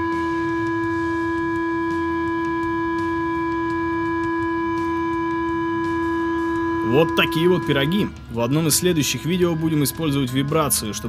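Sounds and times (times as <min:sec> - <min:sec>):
steady pure sine tone: 0:00.0 - 0:08.3.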